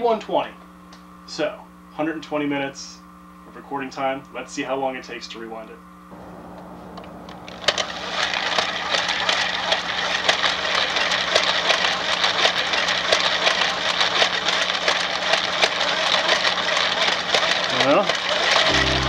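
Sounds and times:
low room hum: 0.0s - 16.7s
tape rewinder rattling whir: 7.3s - 19.0s.

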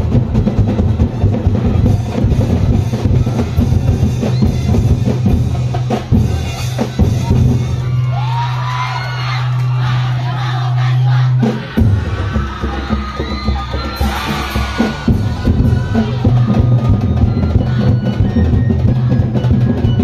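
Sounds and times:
drum-led dance music: 0.0s - 20.0s
voices shouting: 6.0s - 20.0s.

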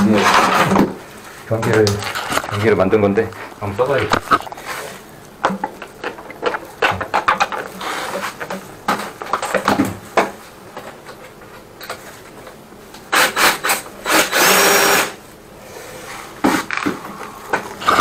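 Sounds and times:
knocks and clatter of handling: 1.6s - 12.6s
drill motor whirring: 13.1s - 15.2s.

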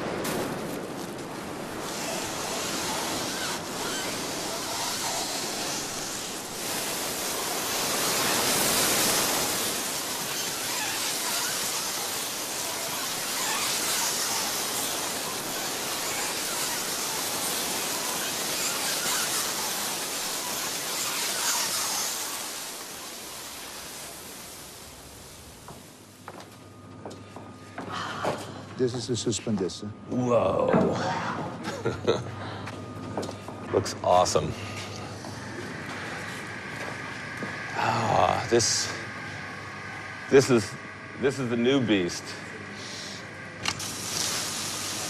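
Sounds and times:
surf rushing: 0.0s - 25.7s
wind: 0.0s - 45.0s.

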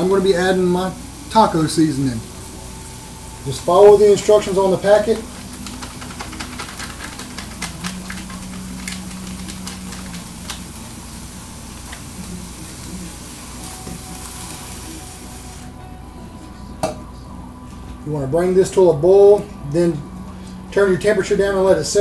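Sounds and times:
meat sizzling in a skillet: 0.0s - 15.8s.

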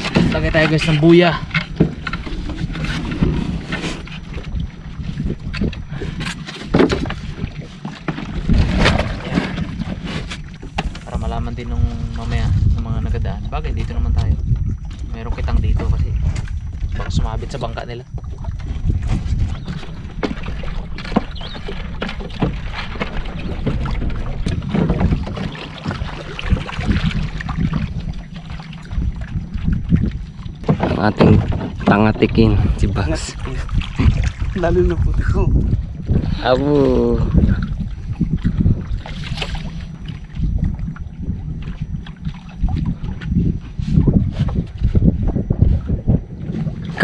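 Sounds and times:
water sloshing around boat: 0.0s - 47.0s
wind buffeting microphone: 0.0s - 47.0s
low rumble: 8.2s - 47.0s
knocks against boat hull: 19.1s - 26.1s, 30.6s - 32.2s.

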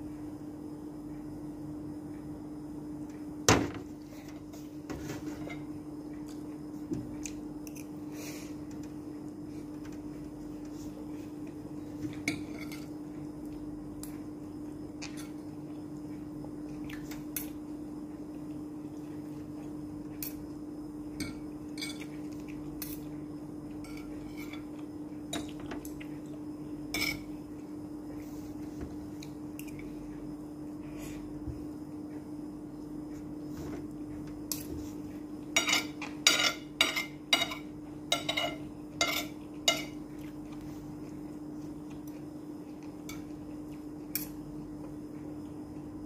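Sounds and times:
cutlery clinking on a plate: 35.6s - 40.0s.

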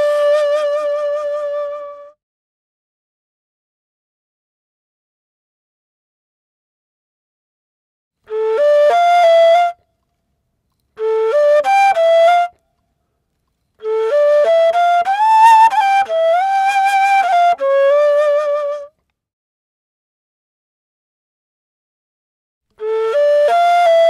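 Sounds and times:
solo end-blown flute: 0.0s - 2.2s, 8.3s - 9.8s, 11.0s - 12.6s, 13.8s - 19.0s, 22.8s - 24.0s.

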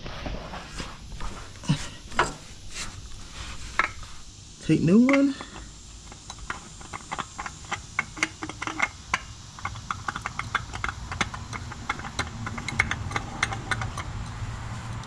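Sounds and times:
oil filter clicking as turned: 5.1s - 14.4s.

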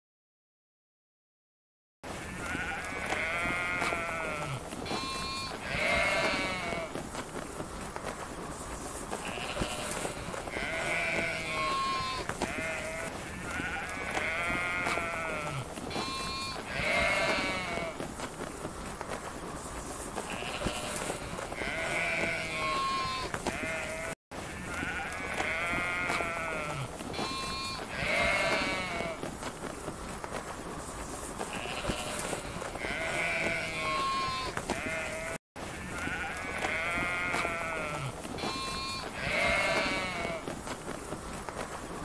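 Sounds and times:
sheep bleating: 2.1s - 7.0s, 9.2s - 18.0s, 20.2s - 29.3s, 31.5s - 40.5s
steady outdoor hiss: 2.1s - 42.0s.

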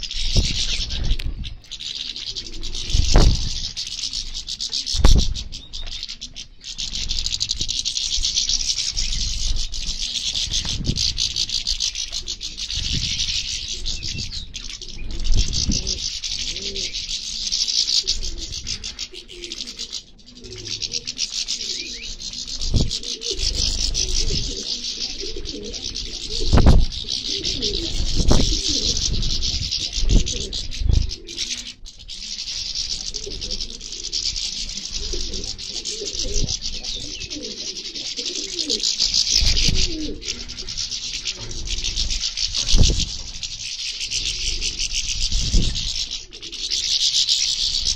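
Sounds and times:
finches chirping: 0.0s - 47.9s
low cooing: 14.8s - 17.1s, 18.0s - 31.6s, 33.1s - 42.1s.

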